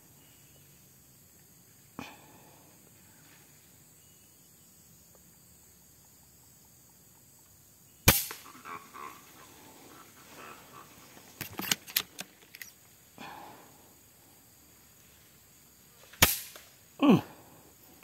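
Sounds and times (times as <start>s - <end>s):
air rifle shot: 8.1s - 8.4s, 16.2s - 16.6s.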